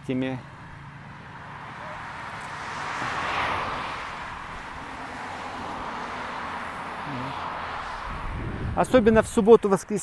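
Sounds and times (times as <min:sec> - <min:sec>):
car driving past: 0:01.4 - 0:08.8.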